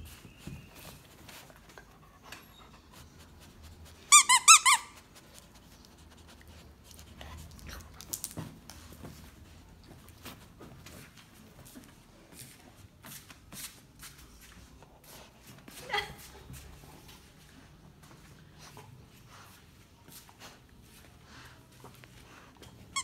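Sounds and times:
dog toy squeaking: 0:04.1 - 0:05.0.

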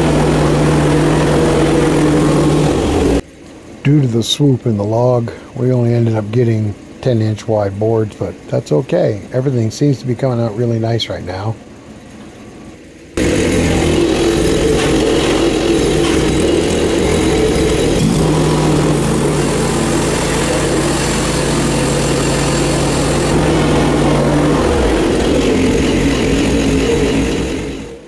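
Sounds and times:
gasoline engine running: 0:00.0 - 0:28.0
steady low hum: 0:00.0 - 0:28.0.

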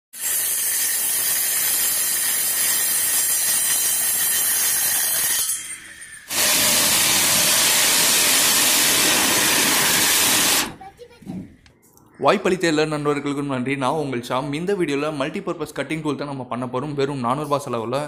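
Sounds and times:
abrasive disc grinding metal: 0:00.2 - 0:10.8
cutting disc whining through wood: 0:00.2 - 0:10.8.

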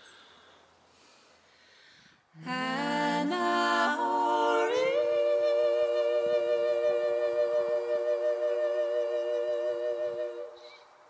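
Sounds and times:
person humming a slow melody: 0:02.4 - 0:10.7.

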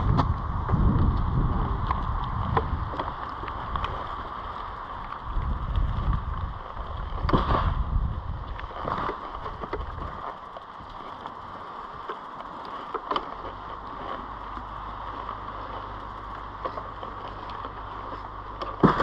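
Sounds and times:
heavy low rumble: 0:00.0 - 0:12.4
bike rattling clicks and knocks: 0:00.0 - 0:19.0
bike tyres rolling on gravel: 0:00.0 - 0:19.0.

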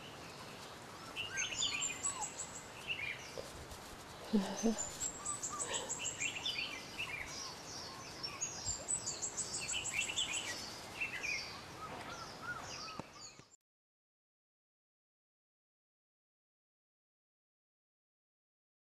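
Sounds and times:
birds singing: 0:00.0 - 0:03.5, 0:04.1 - 0:13.6.

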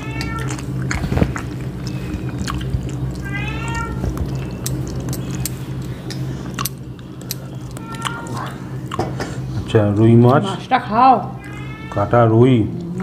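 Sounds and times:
cat meowing: 0:00.0 - 0:00.8, 0:03.2 - 0:04.2, 0:07.7 - 0:08.6, 0:11.4 - 0:12.3
steady low hum: 0:00.0 - 0:13.0.

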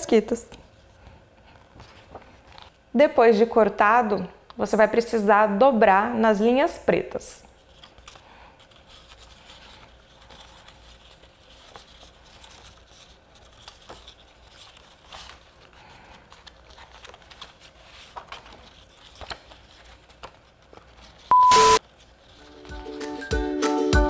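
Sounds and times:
cardstock rustling and clicking: 0:07.7 - 0:21.3.

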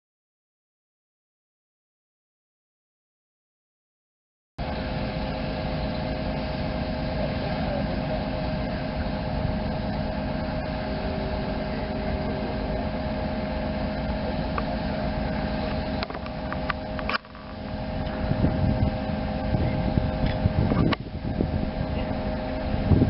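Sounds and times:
crane engine whining: 0:04.6 - 0:23.0.

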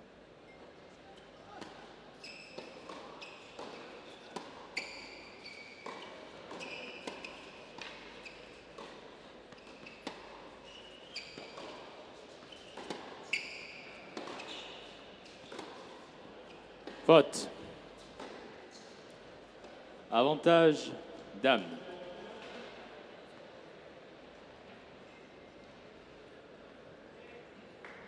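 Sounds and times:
shoes squeaking on court: 0:00.5 - 0:17.0
tennis ball bouncing: 0:01.6 - 0:01.8, 0:02.6 - 0:04.7, 0:05.8 - 0:10.6, 0:11.4 - 0:11.9, 0:12.5 - 0:13.4, 0:14.1 - 0:14.5, 0:15.2 - 0:15.9.

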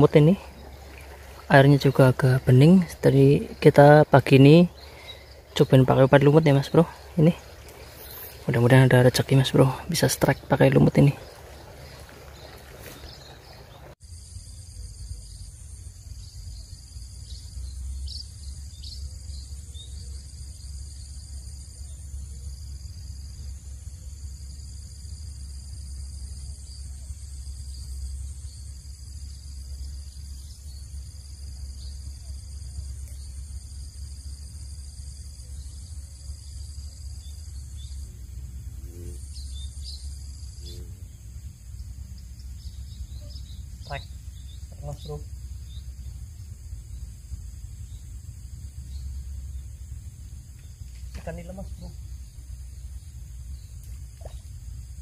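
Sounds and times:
insects chirring: 0:00.0 - 0:55.0
low rumble: 0:32.5 - 0:55.0.

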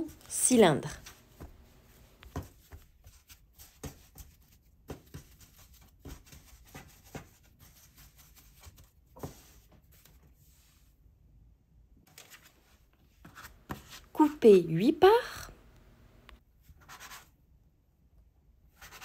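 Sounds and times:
soft pats and thumps of dough: 0:01.0 - 0:10.7.

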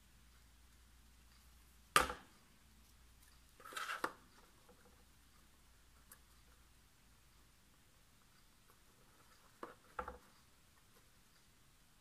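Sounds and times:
card stock rustling and scraping: 0:03.6 - 0:04.2.

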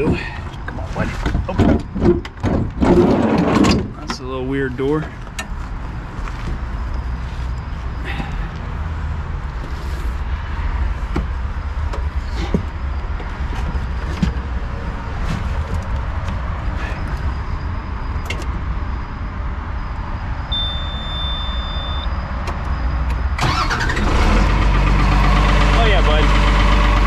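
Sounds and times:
clicks and knocks of controls: 0:18.2 - 0:18.6, 0:22.4 - 0:23.3
electronic beep: 0:18.9 - 0:23.4
diesel engine starting: 0:22.4 - 0:27.0.

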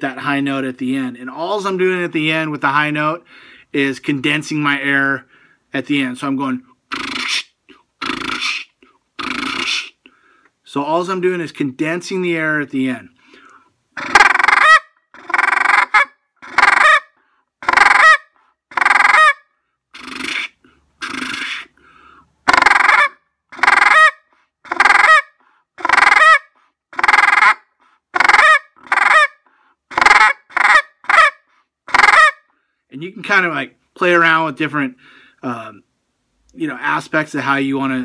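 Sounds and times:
rattling goose calls: 0:14.0 - 0:17.0, 0:17.7 - 0:18.2, 0:22.5 - 0:25.2, 0:25.8 - 0:26.4, 0:27.0 - 0:27.6, 0:28.2 - 0:32.4.

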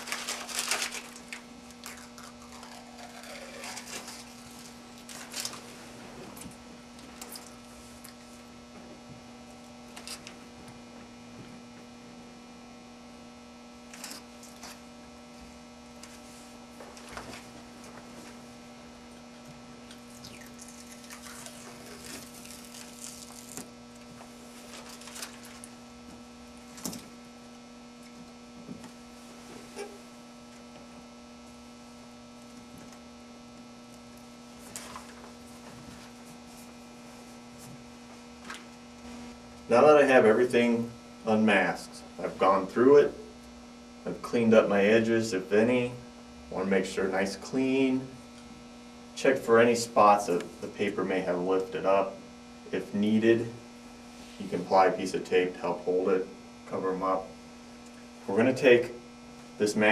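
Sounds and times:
tape being peeled off: 0:00.0 - 0:05.6, 0:19.9 - 0:23.7
electrical hum: 0:00.0 - 0:59.9.

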